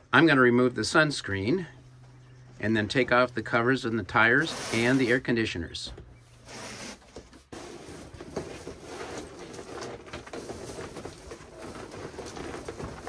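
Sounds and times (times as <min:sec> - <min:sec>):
foil sunshade crinkling: 0:07.8 - 0:13.0.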